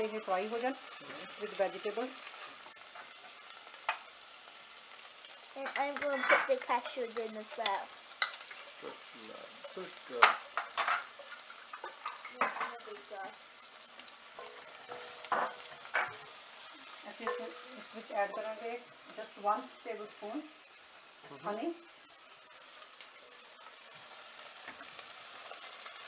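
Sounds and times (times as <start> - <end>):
vegetables sizzling in oil: 0.0 - 26.0
spatulas scraping pans: 5.6 - 7.6, 9.6 - 12.9, 14.4 - 16.3.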